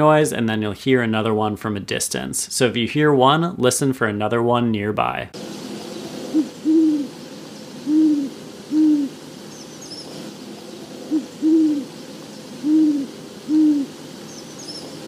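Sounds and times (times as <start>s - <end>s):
owl hooting: 5.4s - 15.0s.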